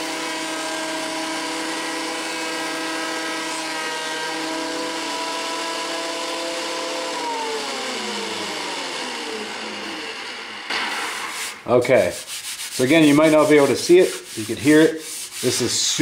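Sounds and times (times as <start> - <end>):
thickness planer running: 0.0 - 11.6.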